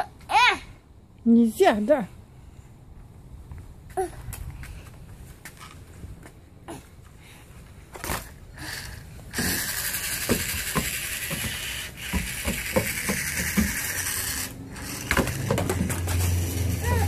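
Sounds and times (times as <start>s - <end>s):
toy truck electric motor whirring: 8.1s - 17.0s.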